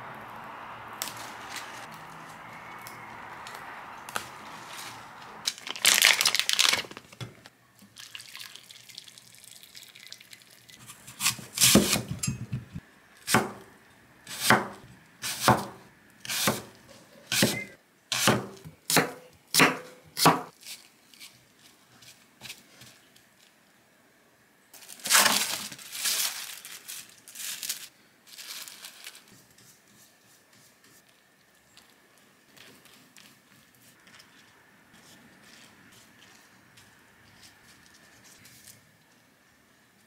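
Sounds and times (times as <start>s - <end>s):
plastic wrap crinkling: 4.5s - 7.5s, 24.8s - 29.5s.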